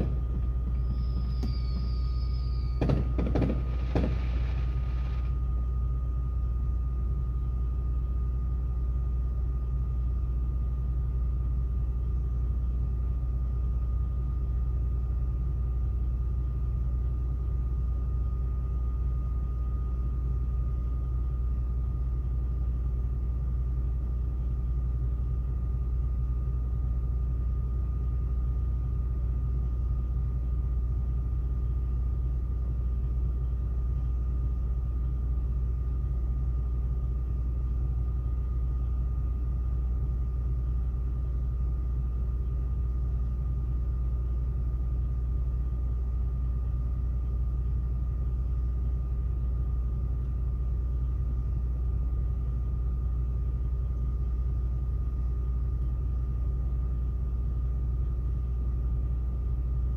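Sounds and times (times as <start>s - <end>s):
truck engine idling: 0.0s - 17.7s
faint high whine: 0.0s - 59.9s.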